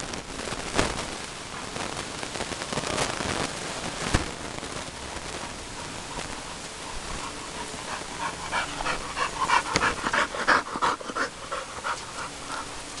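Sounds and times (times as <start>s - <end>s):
dogs making breathy sounds: 5.6s - 13.0s.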